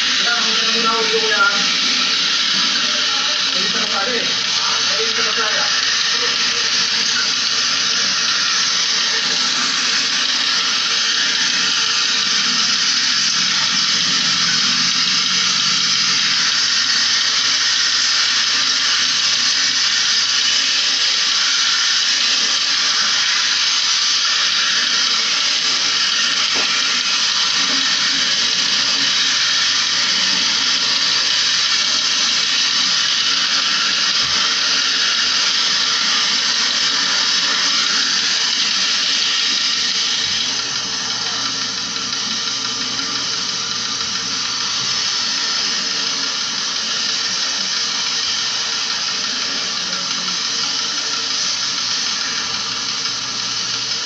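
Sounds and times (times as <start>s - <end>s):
hose nozzle water spray hissing: 0.0s - 53.9s.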